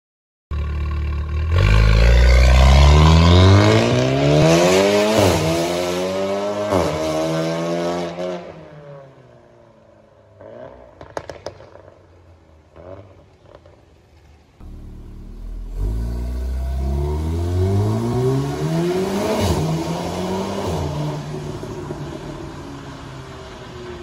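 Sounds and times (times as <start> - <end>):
car engine accelerating hard: 14.6 - 22.6.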